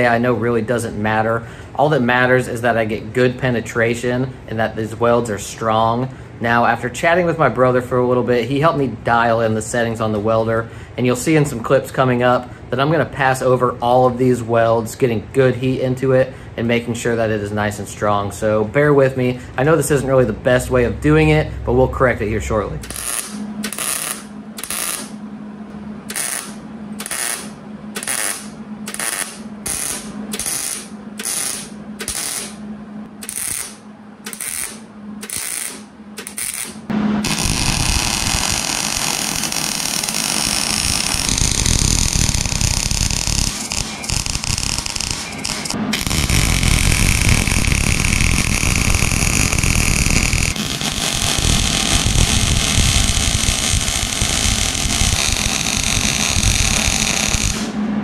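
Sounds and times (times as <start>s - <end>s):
welder arc crackling: 0.0s - 0.2s, 22.8s - 25.2s, 26.1s - 32.6s, 33.2s - 57.8s.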